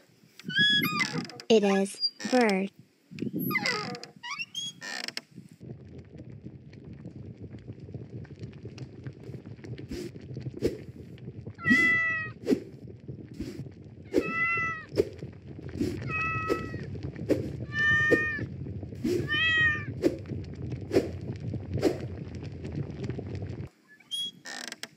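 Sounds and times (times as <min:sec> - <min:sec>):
low steady rumble: 0:05.2 - 0:23.7
cat meowing: 0:11.6 - 0:12.3, 0:14.2 - 0:14.9, 0:16.0 - 0:16.8, 0:17.7 - 0:18.4, 0:19.2 - 0:19.9.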